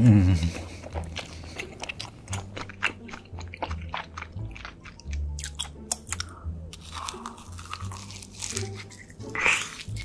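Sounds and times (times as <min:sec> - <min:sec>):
quiet background music: 0:00.0 - 0:10.0
chewing crunchy food: 0:00.4 - 0:10.0.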